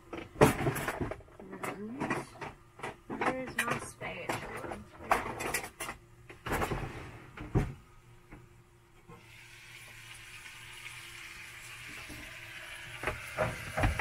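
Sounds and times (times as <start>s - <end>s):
utensils and cookware rattling: 0.1s - 6.9s
chicken sizzling in a pan: 9.2s - 14.0s.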